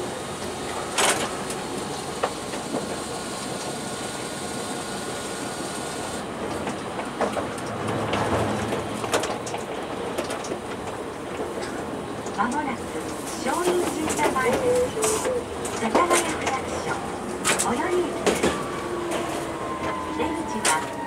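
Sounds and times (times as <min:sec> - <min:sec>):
tram running noise: 0:00.0 - 0:21.0
wheels clicking over rail joints: 0:06.4 - 0:21.0.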